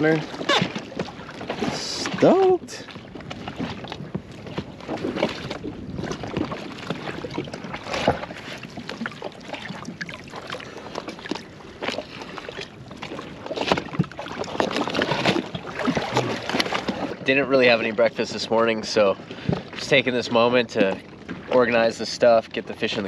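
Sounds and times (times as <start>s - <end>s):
water sloshing against hull: 0.0s - 23.0s.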